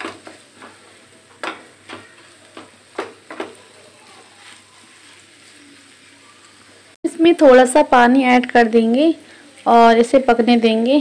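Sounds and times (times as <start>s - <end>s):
spatula knocking and scraping pan: 0.0s - 3.8s
faint frying hiss: 0.0s - 11.0s.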